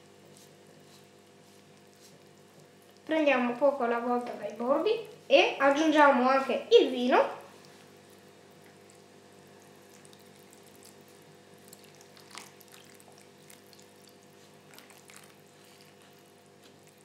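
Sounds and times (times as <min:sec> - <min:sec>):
wet squishing of dough: 0:00.0 - 0:05.3, 0:07.5 - 0:17.0
liquid splash: 0:08.5 - 0:17.0.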